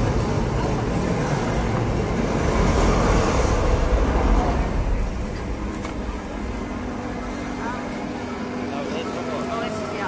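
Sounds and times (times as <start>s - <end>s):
deep rumbling of fireworks show: 0.0s - 7.3s.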